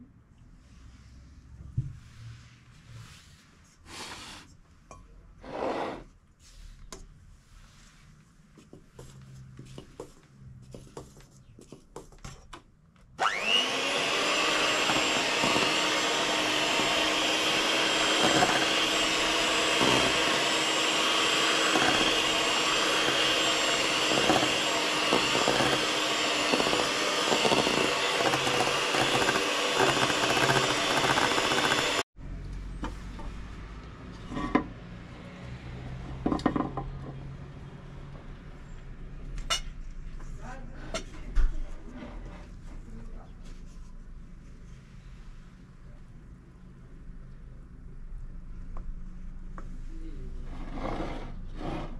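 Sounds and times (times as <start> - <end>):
electric mixer motor: 13.2 - 32.1.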